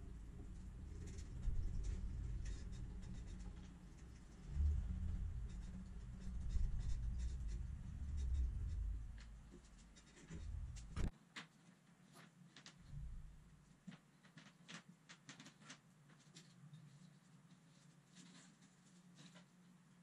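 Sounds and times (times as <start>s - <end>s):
low rumble: 0.0s - 11.1s, 12.9s - 13.5s
scratchy paintbrush strokes: 0.0s - 11.1s.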